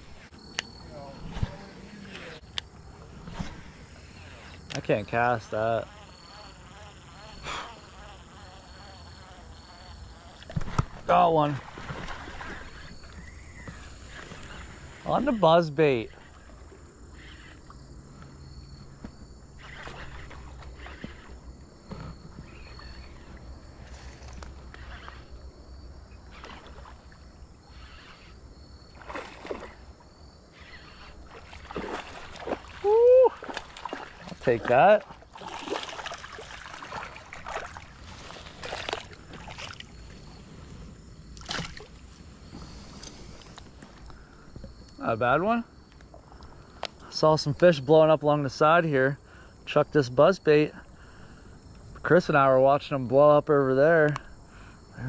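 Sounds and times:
crickets chirping: 0.0 - 55.0
water splashing and sloshing: 10.4 - 15.4, 18.8 - 25.4, 26.2 - 28.2, 28.8 - 44.8
water splashing: 10.5 - 13.1, 31.1 - 40.4, 41.4 - 42.2.

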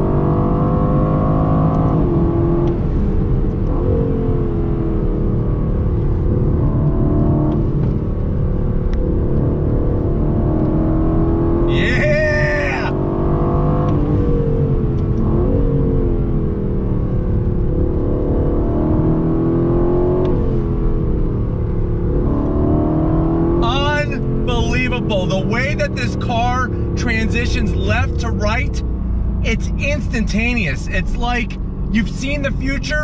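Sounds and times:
car engine accelerating: 0.0 - 33.0.

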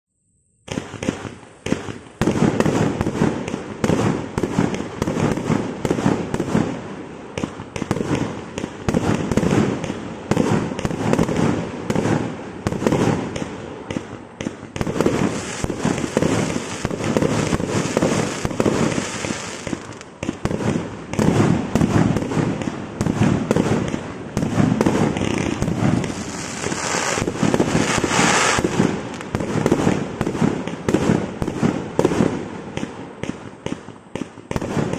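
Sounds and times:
firework cake bangs and bursts: 7.4 - 34.9.

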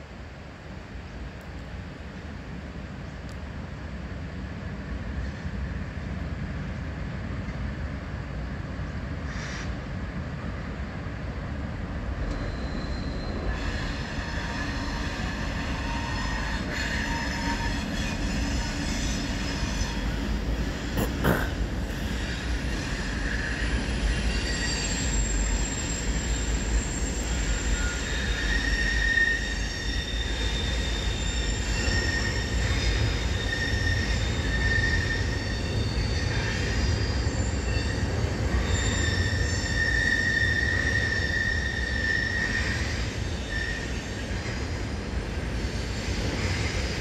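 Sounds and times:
train rumble on bridge: 0.0 - 47.0
wheel squeal: 12.3 - 20.3, 22.1 - 44.6.

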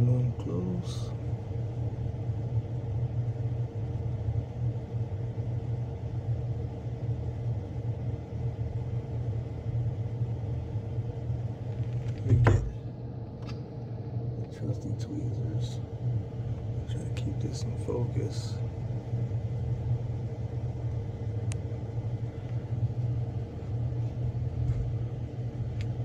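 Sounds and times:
low machine hum: 0.0 - 26.0
close knock: 12.2 - 12.8.

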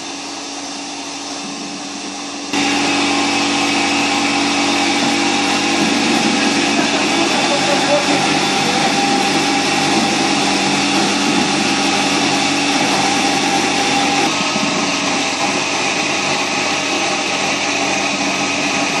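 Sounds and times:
small motor whirring: 2.5 - 15.3.

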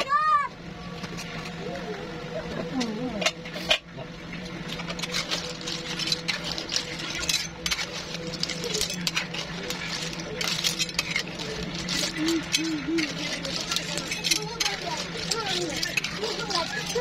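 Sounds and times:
clam shells clinking in a pan: 4.7 - 17.0.

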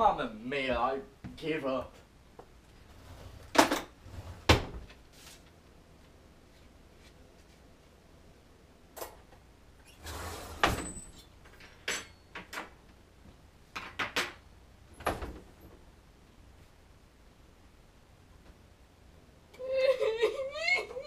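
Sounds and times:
rustle: 5.0 - 5.6
dishes and cutlery clinking: 11.6 - 12.5.

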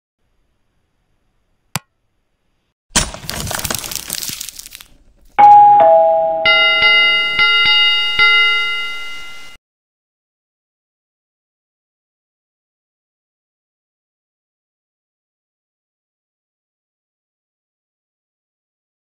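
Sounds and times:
bell-like notification chime: 5.4 - 9.6
two-note ding-dong chime: 5.4 - 9.6.

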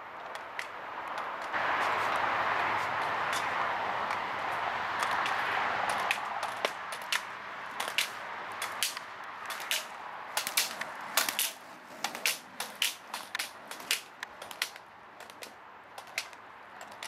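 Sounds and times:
skate wheels rolling: 0.0 - 17.0
plastic poles clacking: 5.0 - 17.0.

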